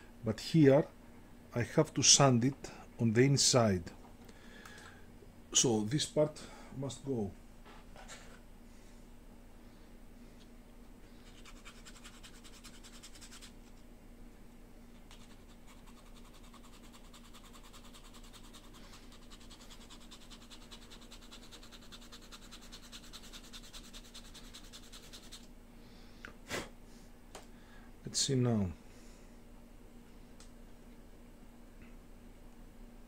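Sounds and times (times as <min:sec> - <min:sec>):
sandpaper scratching wood: 0:11.2 - 0:13.6, 0:15.1 - 0:25.5.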